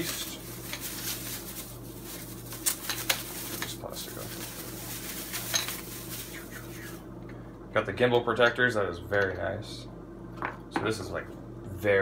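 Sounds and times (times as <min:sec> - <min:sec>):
plastic bag crinkling: 0:00.0 - 0:07.0
steady low hum: 0:00.0 - 0:12.0.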